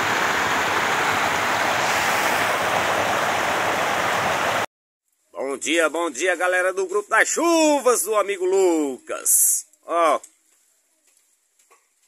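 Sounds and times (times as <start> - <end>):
floodwater rushing: 0.0 - 4.7.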